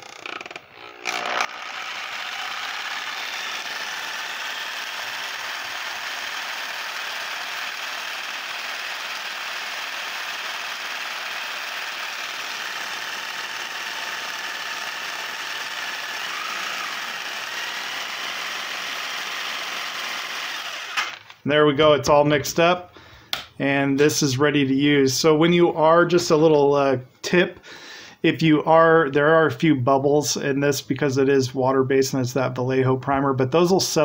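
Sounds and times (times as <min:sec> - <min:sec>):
jigsaw running: 0:00.0 - 0:21.4.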